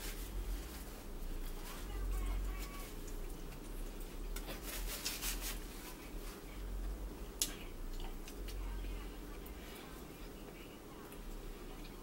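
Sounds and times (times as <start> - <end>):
soft rustles and rubs: 0.0 - 3.1, 4.5 - 6.6
low steady hum: 0.0 - 12.0.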